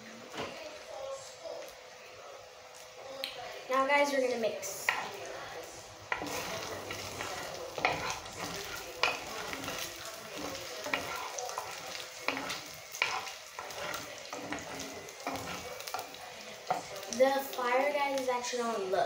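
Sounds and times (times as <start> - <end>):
food sizzling in hot oil: 0.0 - 19.0
spoon knocking and scraping pot: 4.8 - 5.2, 6.1 - 16.1.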